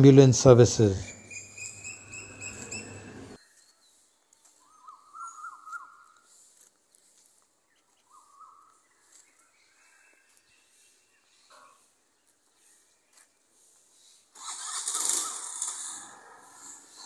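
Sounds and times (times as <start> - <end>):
faint outdoor background noise: 0.0 - 17.0
bird calling rapid short notes: 14.4 - 16.1.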